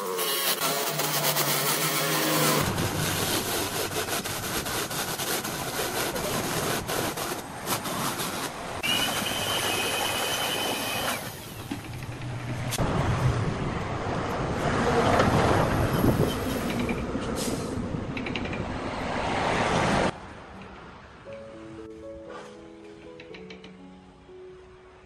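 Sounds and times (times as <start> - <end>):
woodworking power tool hissing: 8.8 - 11.6.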